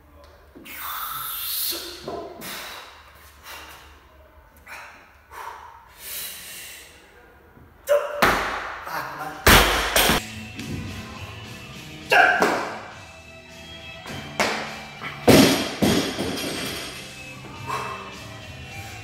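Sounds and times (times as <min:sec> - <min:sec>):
heavy thud: 0:15.3 - 0:16.8.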